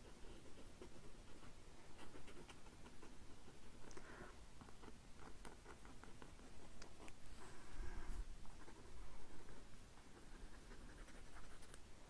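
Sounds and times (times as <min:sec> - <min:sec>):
pen scratching on paper: 0:08.5 - 0:11.8.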